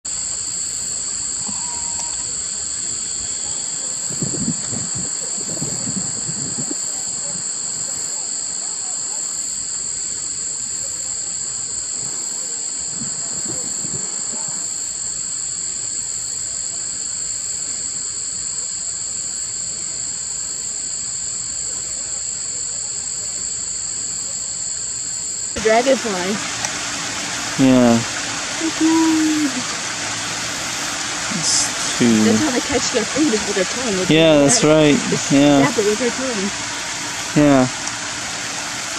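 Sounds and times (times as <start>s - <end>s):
high-pitched insect chorus: 0.1s - 38.9s
muffled human voices: 27.6s - 29.7s, 31.2s - 36.6s, 37.3s - 37.7s.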